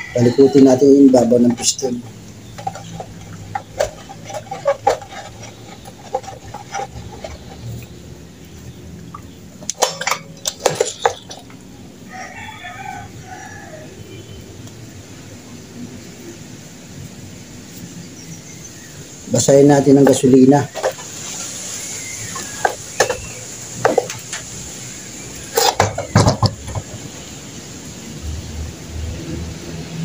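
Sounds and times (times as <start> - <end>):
chickens clucking: 0.0 - 13.5, 19.4 - 24.6, 25.2 - 27.4
engine handled on concrete floor: 0.2 - 7.9, 9.6 - 11.7, 20.0 - 24.6, 25.5 - 27.2
sharp knocks: 25.6 - 27.1.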